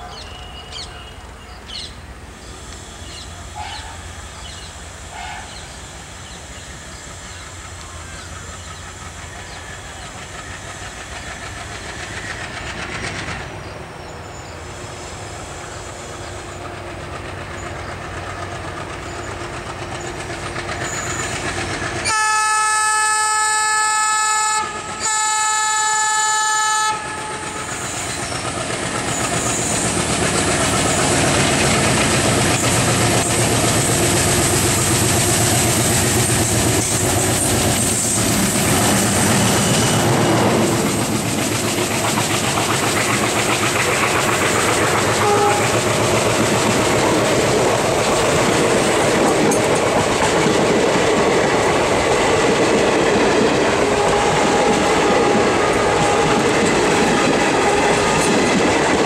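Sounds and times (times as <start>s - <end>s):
diesel locomotive engine accelerating: 0.0s - 59.0s
locomotive horn blasts: 22.0s - 27.6s, 45.2s - 45.8s.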